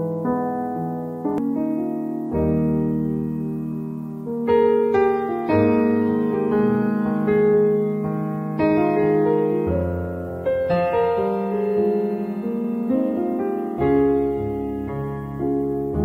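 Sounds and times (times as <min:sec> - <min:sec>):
slow piano chords: 0:00.0 - 0:16.0.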